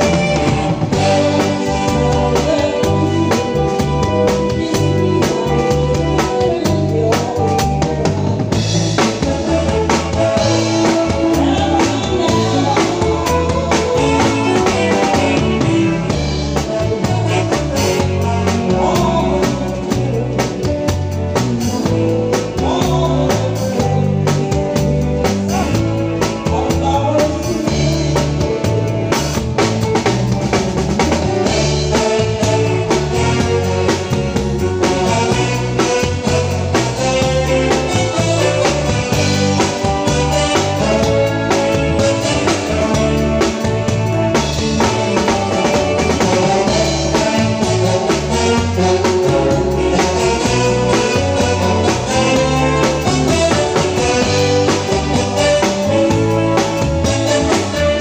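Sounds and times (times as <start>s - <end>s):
bass notes: 0.0s - 58.0s
drum kit beat: 0.0s - 58.0s
live band playing loud music: 0.0s - 58.0s.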